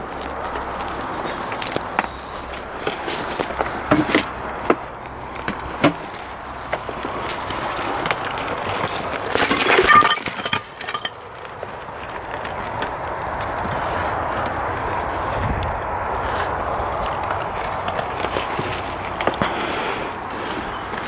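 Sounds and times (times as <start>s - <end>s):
leaves and branches rustling: 0.0s - 21.0s
twigs snapping: 0.0s - 21.0s.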